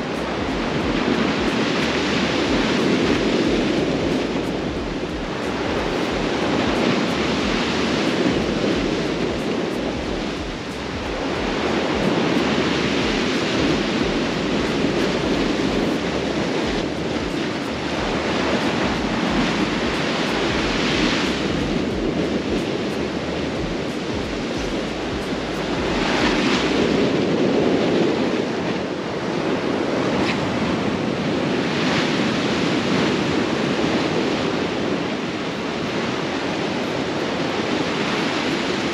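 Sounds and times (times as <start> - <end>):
sea surf breaking: 0.0 - 38.9
wind rumbling on microphone: 0.0 - 38.9.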